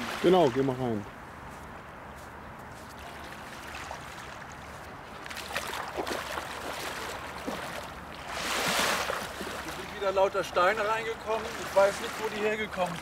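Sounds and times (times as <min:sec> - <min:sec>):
feet splashing in water: 0:02.8 - 0:10.1
river rushing: 0:05.5 - 0:13.0.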